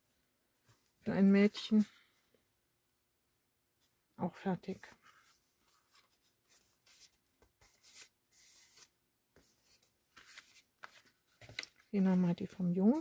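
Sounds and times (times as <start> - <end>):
card stock rustling and sliding: 5.0 - 11.8.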